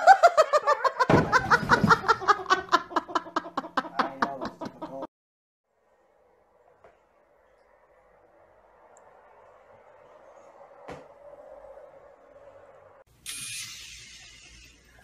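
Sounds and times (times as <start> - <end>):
person laughing hard: 0.0 - 5.1.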